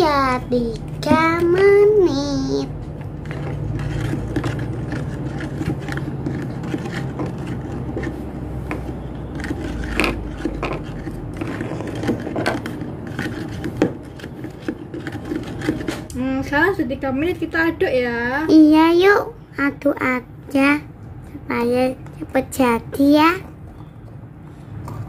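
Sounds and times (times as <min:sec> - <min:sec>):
spoon scraping plastic pot: 0:00.0 - 0:16.2.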